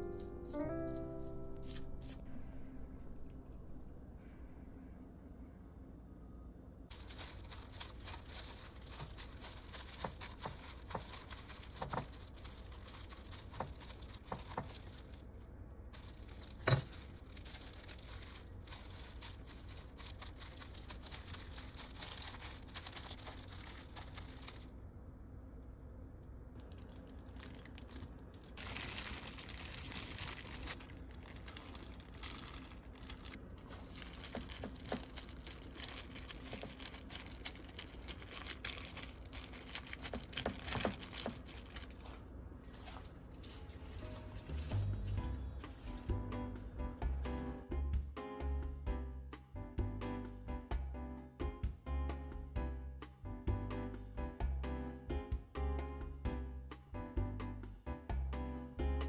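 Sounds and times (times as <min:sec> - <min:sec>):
paste squishing: 0:06.9 - 0:15.3, 0:16.0 - 0:24.6, 0:26.7 - 0:44.8
plastic gloves crinkling: 0:06.9 - 0:24.7, 0:26.6 - 0:46.2.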